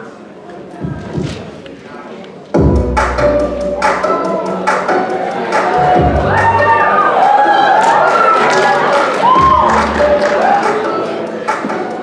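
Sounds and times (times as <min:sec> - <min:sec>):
audience cheering and whooping: 0:05.5 - 0:11.0
scattered claps: 0:07.8 - 0:12.0.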